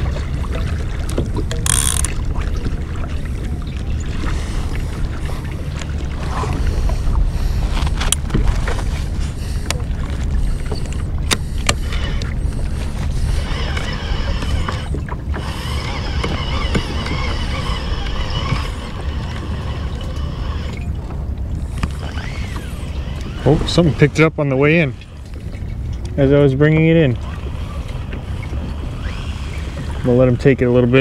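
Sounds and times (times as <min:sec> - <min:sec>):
water sloshing against kayak hull: 0:00.0 - 0:31.0
wind on microphone: 0:00.0 - 0:31.0
fishing reel whirring: 0:01.5 - 0:02.2, 0:10.6 - 0:21.0, 0:21.6 - 0:24.3, 0:27.3 - 0:30.2
sharp clicks: 0:01.5 - 0:02.2.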